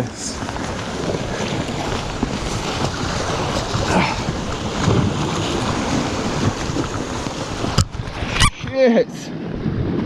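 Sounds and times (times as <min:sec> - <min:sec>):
surf breaking against rocks: 0:00.0 - 0:10.0
wind buffeting microphone: 0:00.0 - 0:10.0.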